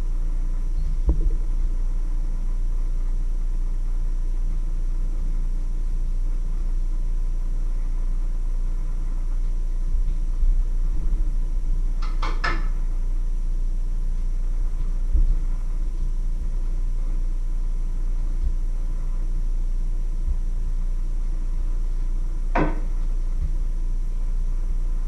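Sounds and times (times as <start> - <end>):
steady low hum: 0.0 - 25.0
soft thumps: 1.0 - 1.5.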